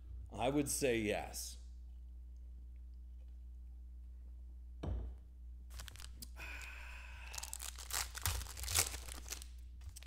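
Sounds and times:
thump: 4.8 - 5.2
wrapper crinkling and tearing: 5.7 - 10.0.

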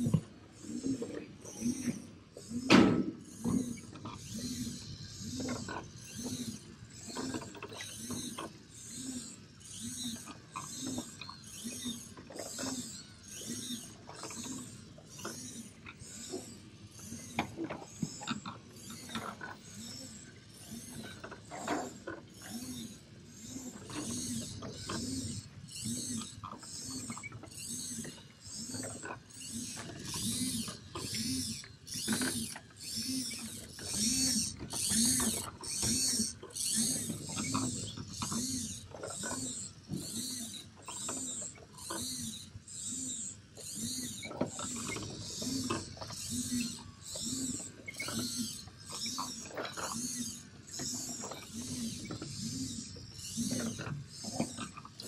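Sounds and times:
toy motors and gears whirring: 0.0 - 55.0.

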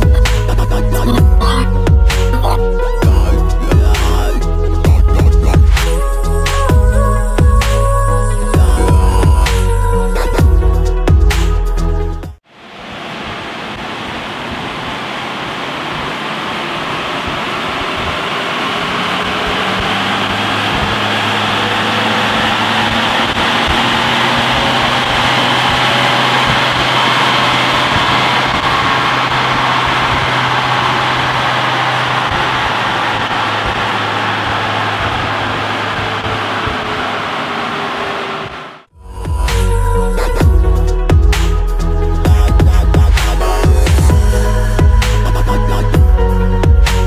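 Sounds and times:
steady rush of noise: 12.4 - 39.8
diesel engine revving under load: 15.0 - 47.0.

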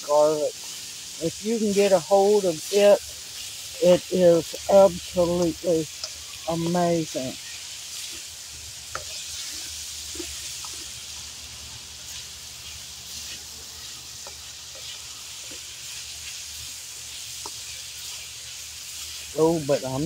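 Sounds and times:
vegetables sizzling in a wok: 0.0 - 20.0
spatula scraping and tapping: 8.9 - 11.0, 14.2 - 15.7, 17.4 - 17.7.

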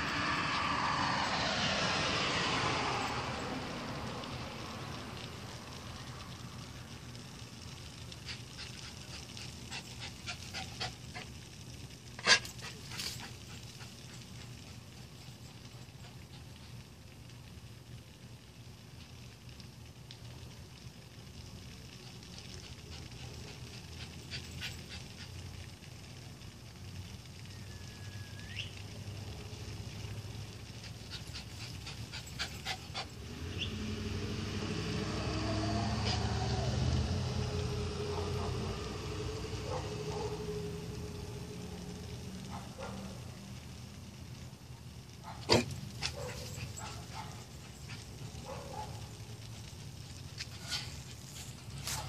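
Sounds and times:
car engine approaching: 0.0 - 11.3, 28.9 - 44.1
low outdoor hum: 0.0 - 52.0
dog barking: 38.1 - 38.6, 39.6 - 40.4, 42.5 - 43.2, 45.2 - 47.5, 48.4 - 49.1.

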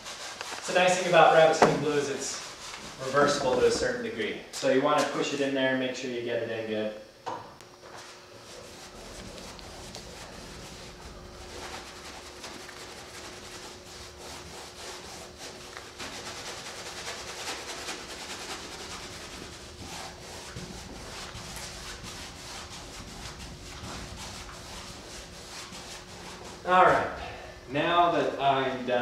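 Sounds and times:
paintbrush scrubbing canvas: 8.0 - 26.7.

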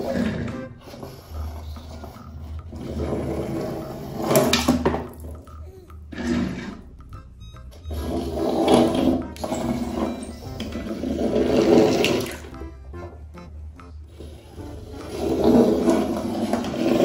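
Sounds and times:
toy car rolling on hard ledge: 0.0 - 5.4, 6.1 - 6.8, 7.9 - 12.3, 15.0 - 17.0
toy car splashing into water: 4.3 - 5.4
water sloshing: 10.6 - 12.5.

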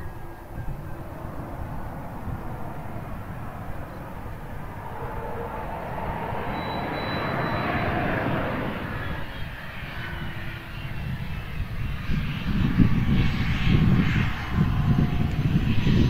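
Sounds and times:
aircraft engines running: 0.0 - 16.0
faint high whine: 0.0 - 16.0.

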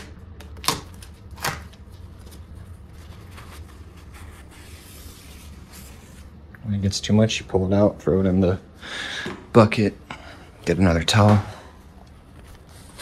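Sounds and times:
paper towel rustling and rubbing: 1.8 - 6.4.

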